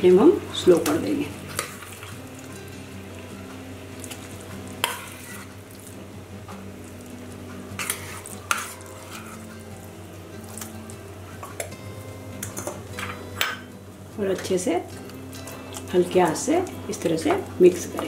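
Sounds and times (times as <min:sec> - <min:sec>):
spoon stirring: 0:07.8 - 0:09.5.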